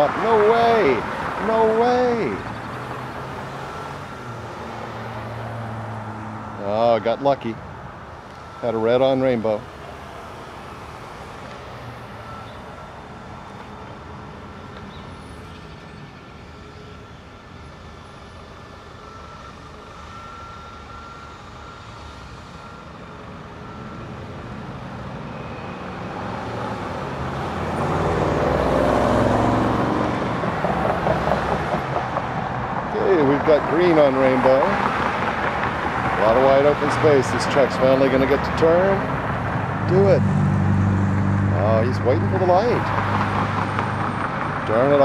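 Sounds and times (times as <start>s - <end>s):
vehicle driving past: 0.0s - 7.2s, 25.4s - 45.0s
low rumble of traffic: 0.0s - 45.0s.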